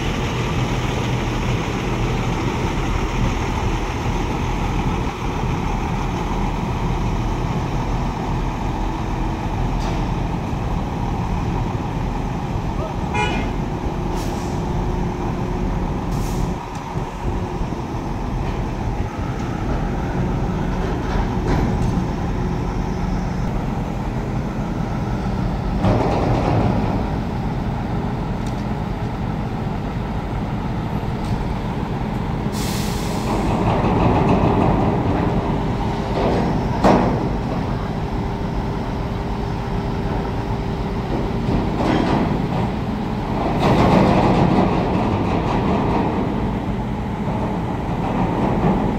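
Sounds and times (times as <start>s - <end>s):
heavy diesel engines running: 0.0s - 48.9s
sharp hiss of air: 14.1s - 14.7s, 16.1s - 16.6s, 32.5s - 33.5s.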